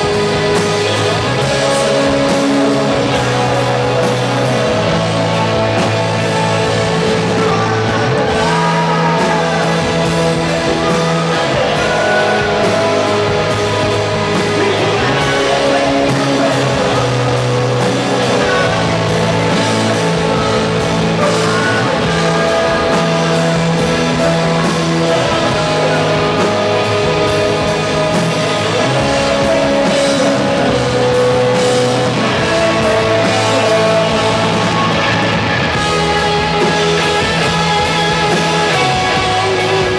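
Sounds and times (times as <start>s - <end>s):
drum kit: 0.0s - 39.9s
electric guitars: 0.0s - 39.9s
man singing into a microphone: 0.8s - 27.6s, 28.8s - 35.2s.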